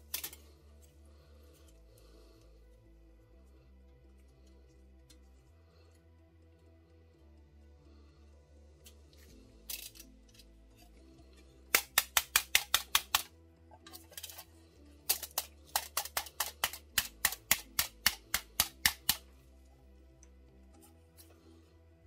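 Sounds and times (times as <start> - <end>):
quick percussive clicks: 11.7 - 13.3, 15.0 - 19.3.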